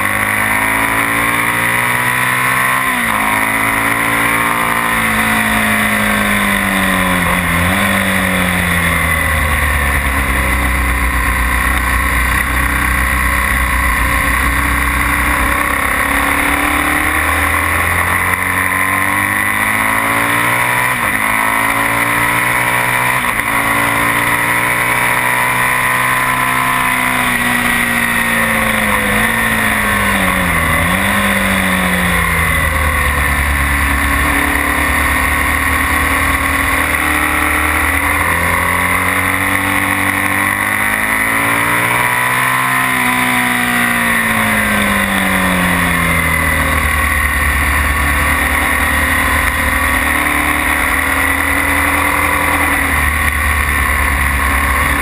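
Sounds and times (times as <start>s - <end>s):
motorcycle engine pulling hard: 0.0s - 55.0s.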